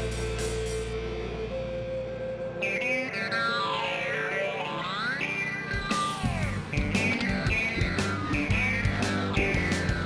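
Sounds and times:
rock music: 0:00.0 - 0:10.0
steady drum beat: 0:06.3 - 0:10.0.

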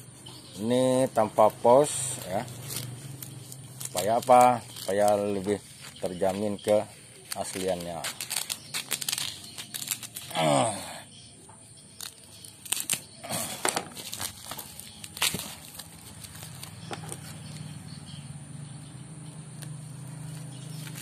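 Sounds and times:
plastic wrapping crinkling: 0:01.3 - 0:10.8, 0:12.0 - 0:17.6, 0:20.1 - 0:21.0.

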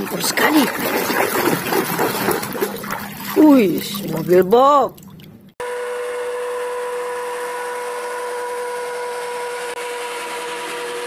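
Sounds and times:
motor drone with whine: 0:05.6 - 0:11.0.

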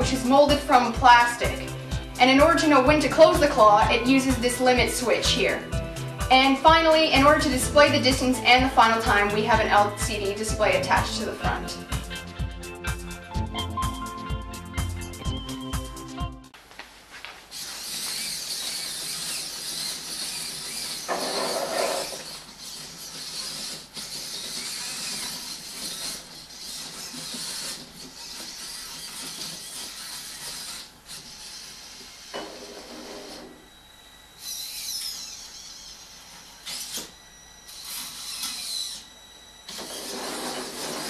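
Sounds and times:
robot motors and gears whirring: 0:17.5 - 0:41.0.

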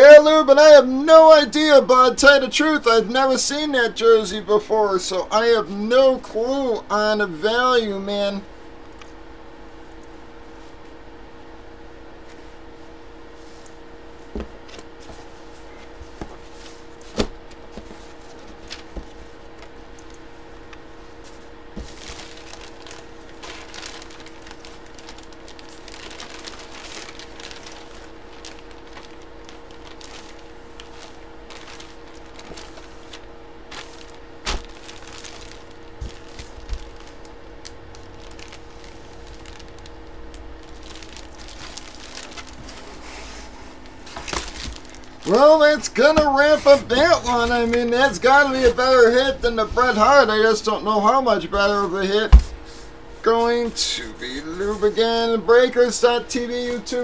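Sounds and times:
low electrical hum: 0:00.0 - 0:57.0
fabric and cardboard handling: 0:12.2 - 0:50.6
plastic packaging crinkling: 0:14.5 - 0:50.6.

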